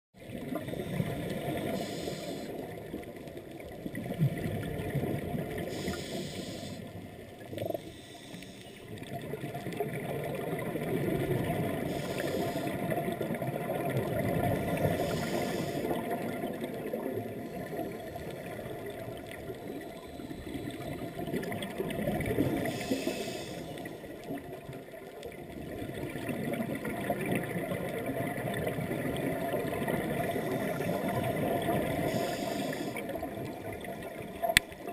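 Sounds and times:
exhaled bubbles rushing: 3.8 - 5.7, 9.0 - 12.0, 15.9 - 22.8, 25.4 - 32.2.

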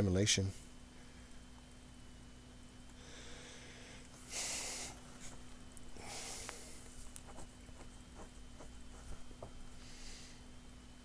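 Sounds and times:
steady electrical hum: 0.0 - 11.0
man breathing out: 3.0 - 5.0, 5.9 - 6.8.

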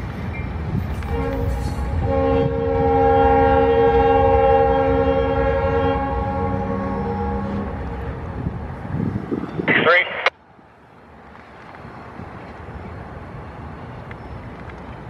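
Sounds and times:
train rumble: 0.0 - 15.0
locomotive air horn blast: 1.1 - 8.2.

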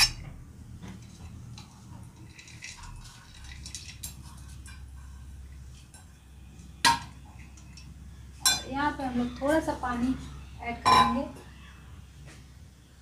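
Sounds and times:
grains pattering into pot: 0.9 - 5.8.

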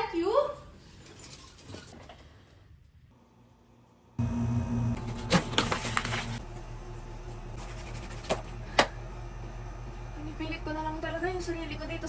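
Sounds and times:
low steady hum: 3.1 - 12.0.

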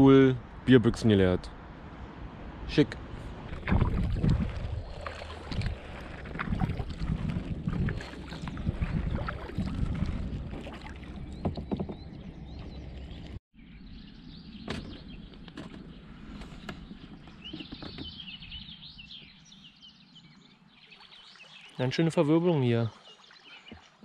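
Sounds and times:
wind rumble on microphone: 0.0 - 20.4
paddle splashing in water: 3.4 - 13.3, 22.9 - 24.0
paddle dripping water: 3.5 - 13.2, 21.0 - 24.0
birds chirping: 11.0 - 24.0.

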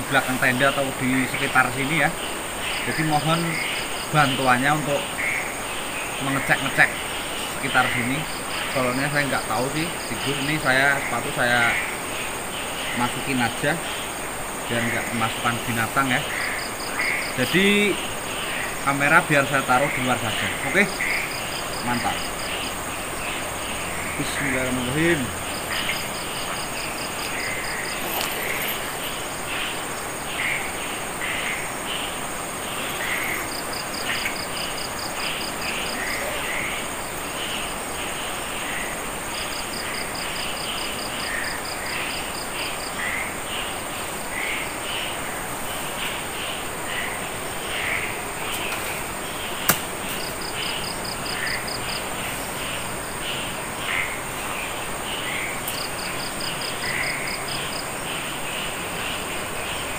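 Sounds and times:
crickets buzzing: 0.0 - 59.9
insect chirps: 0.0 - 59.9
rapid insect pulsing: 0.0 - 59.9
sharp click: 49.6 - 50.2.

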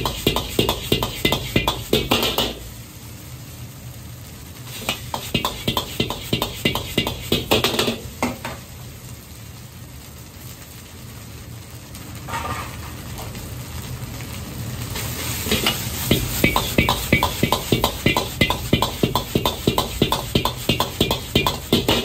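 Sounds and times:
metal ladle clanking against wok: 0.0 - 2.6, 4.8 - 8.0, 15.5 - 22.0
rice sizzling: 0.0 - 22.0.

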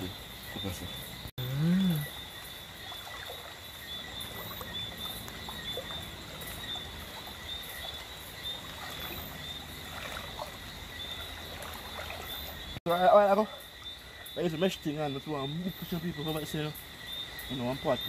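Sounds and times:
night insects chorus: 0.0 - 18.0
person humming: 1.4 - 2.1
river water splashing: 1.8 - 18.0.

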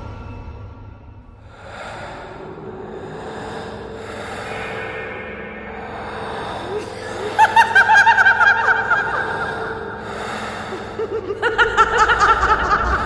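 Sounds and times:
high-pitched cackling laughter: 6.8 - 9.7, 11.0 - 13.0.

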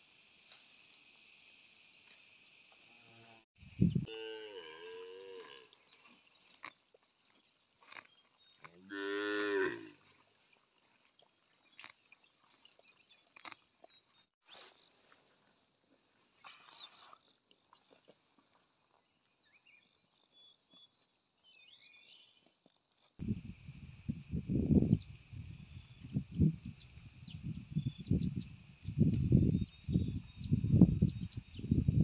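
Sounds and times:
grass being torn and chewed: 4.8 - 14.3
calf mooing: 8.8 - 9.9.

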